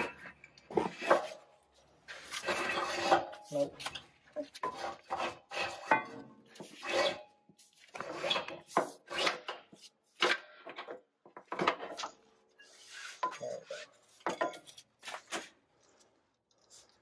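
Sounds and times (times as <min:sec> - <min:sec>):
hose scraping against metal frame: 0:02.1 - 0:09.8, 0:11.9 - 0:15.3.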